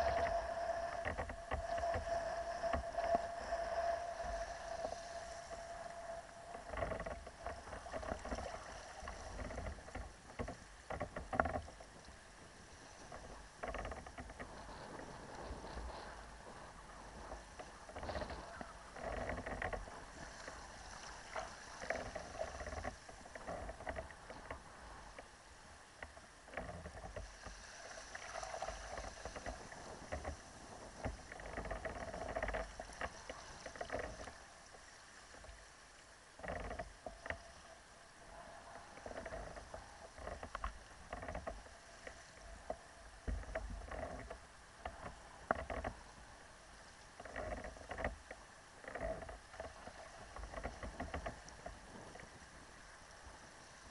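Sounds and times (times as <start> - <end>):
water splashing against kayak hull: 0.0 - 53.9
wind rumbling on microphone: 0.0 - 53.9.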